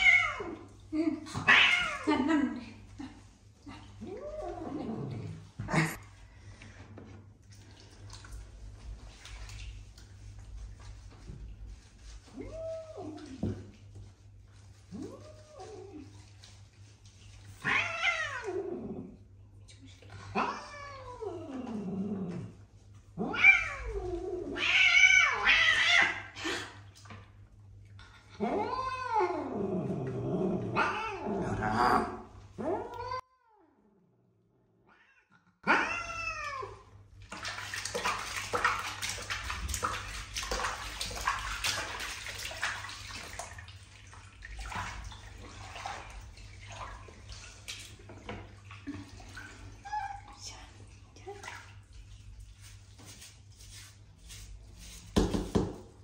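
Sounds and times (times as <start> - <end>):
cat yowling and meowing: 0.0 - 0.6, 17.6 - 18.7, 23.2 - 26.4, 28.4 - 29.5, 34.9 - 36.8
bath water sloshing and splashing: 0.0 - 31.4, 36.2 - 56.0.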